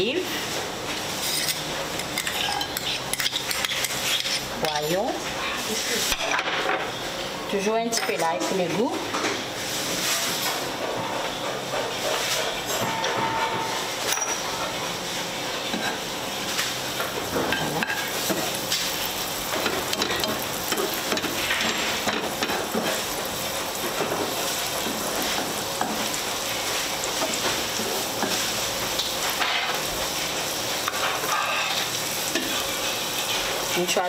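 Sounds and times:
spatula scraping a pan: 0:01.2 - 0:04.5, 0:30.8 - 0:33.8
garlic sizzling in oil: 0:14.7 - 0:34.0.

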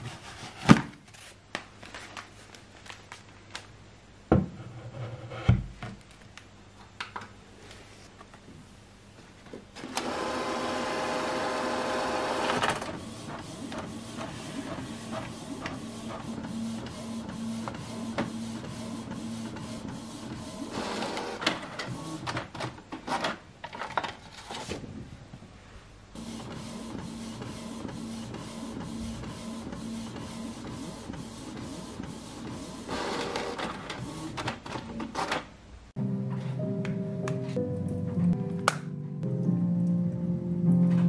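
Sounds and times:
printer clatter: 0:09.8 - 0:24.1, 0:26.2 - 0:35.5.

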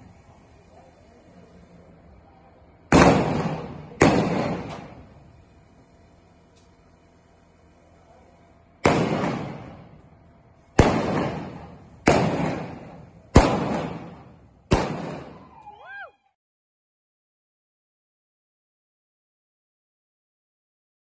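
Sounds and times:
revolver gunshots echoing: 0:02.9 - 0:05.1, 0:08.8 - 0:10.0, 0:10.8 - 0:15.4.

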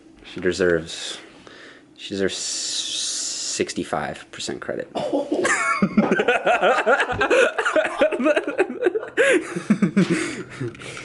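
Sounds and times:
people speaking: 0:00.2 - 0:01.3, 0:02.0 - 0:05.0
people laughing: 0:05.0 - 0:10.8.

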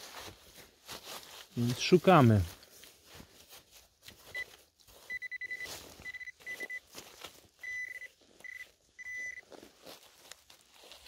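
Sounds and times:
metal detector beeping: 0:04.3 - 0:06.9, 0:07.6 - 0:09.5
scraping in leaf litter: 0:09.4 - 0:11.0.

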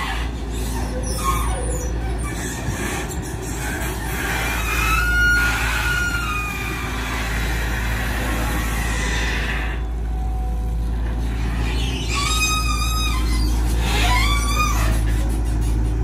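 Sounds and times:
excavator diesel engine rumble: 0:00.0 - 0:16.0
high squeals gliding down: 0:04.4 - 0:10.3, 0:11.5 - 0:15.2.

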